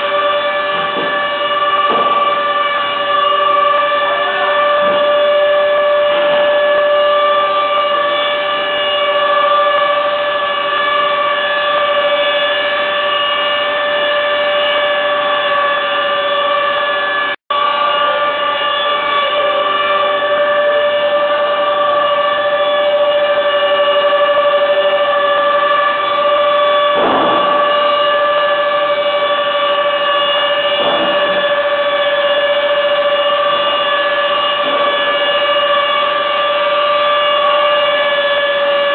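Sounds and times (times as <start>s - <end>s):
woodworking machinery whine: 0.0s - 38.9s
timber knocks: 0.7s - 2.8s, 27.0s - 28.0s, 30.1s - 31.6s.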